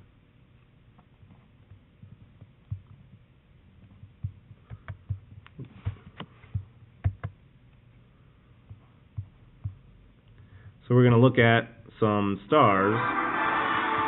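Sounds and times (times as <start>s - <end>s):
faint steady hum: 0.0s - 14.0s
computer mouse clicks and thumps: 3.8s - 7.4s.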